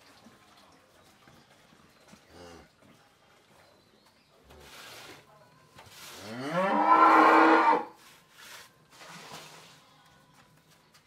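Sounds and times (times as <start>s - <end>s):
cow mooing: 6.4s - 7.9s.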